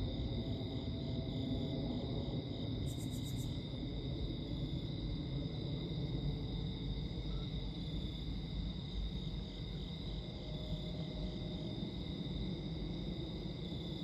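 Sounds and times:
night insects chirring: 0.0 - 14.0.

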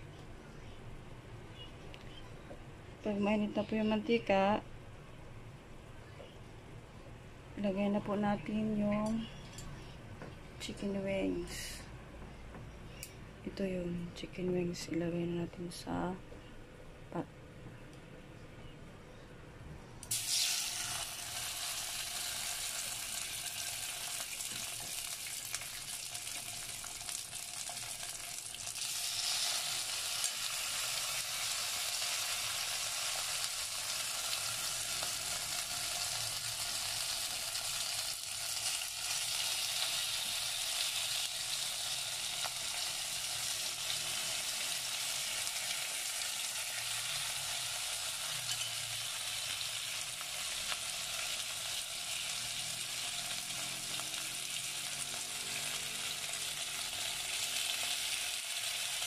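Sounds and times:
chicken wings sizzling in oil: 20.0 - 59.0.

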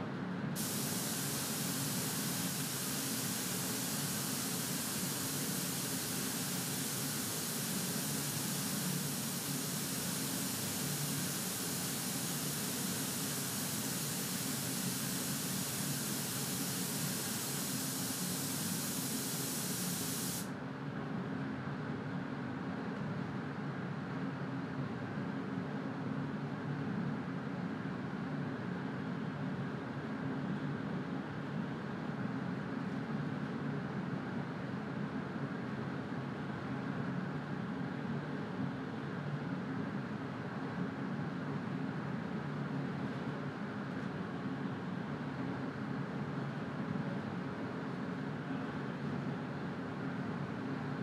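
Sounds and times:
spray gun hissing: 0.6 - 20.5
steady low hum: 0.6 - 20.5.

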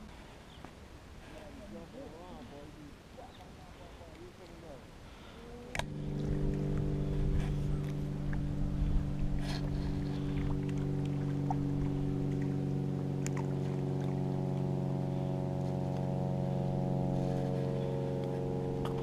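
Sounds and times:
steady motor drone: 5.1 - 19.0.

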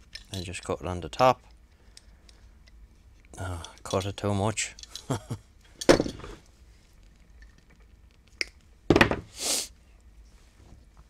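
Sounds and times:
tools thunking on wooden desk: 5.8 - 6.4, 8.9 - 9.3
short hiss: 9.3 - 9.8.

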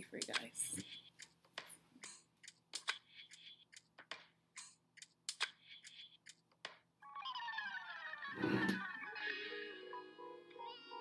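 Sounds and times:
music: 7.0 - 11.0.

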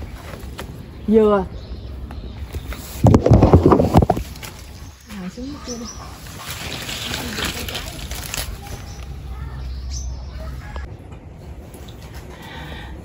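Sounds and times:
leaves and brush rustling: 2.3 - 10.7
crackles: 6.2 - 9.3.

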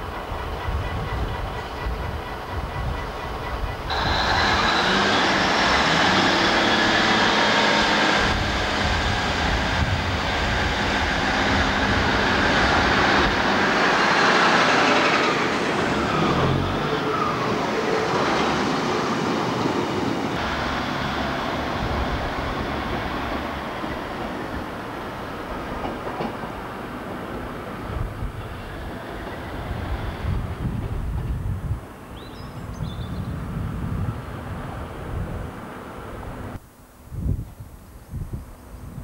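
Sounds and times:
wheels rumbling on rail: 0.0 - 36.6
diesel engines running: 3.9 - 18.6, 20.2 - 25.2.

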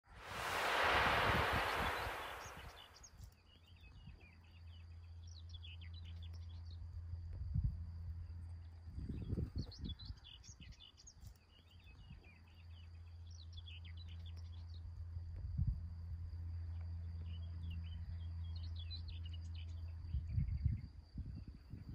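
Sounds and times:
wind rumble on microphone: 0.0 - 3.0, 8.9 - 10.8, 20.0 - 21.9.

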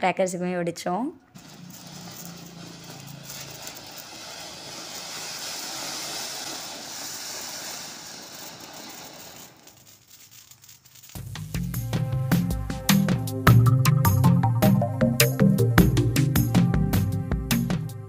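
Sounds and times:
fireworks hissing sparks: 1.4 - 13.1.

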